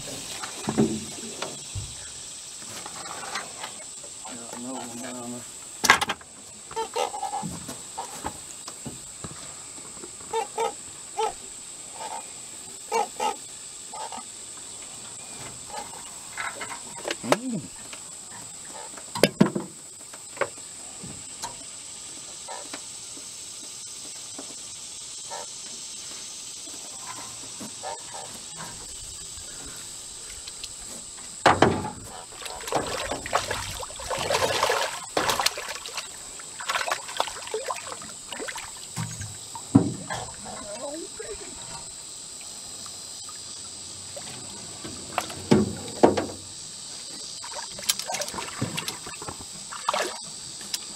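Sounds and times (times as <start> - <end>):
rustles: 0.0 - 10.3
insects droning: 0.0 - 50.9
fish splashing: 32.1 - 45.4, 47.1 - 50.3.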